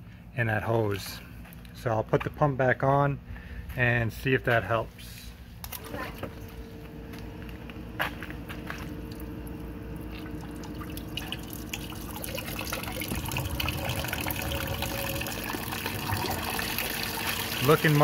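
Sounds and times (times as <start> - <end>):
pump humming: 5.4 - 18.0
water trickling and dripping: 9.0 - 18.0.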